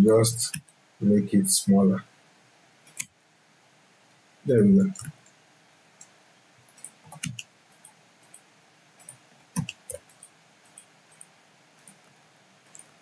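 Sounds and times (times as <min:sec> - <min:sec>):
mouse and keyboard clicks: 0:02.9 - 0:03.1, 0:06.7 - 0:08.4, 0:09.0 - 0:13.0.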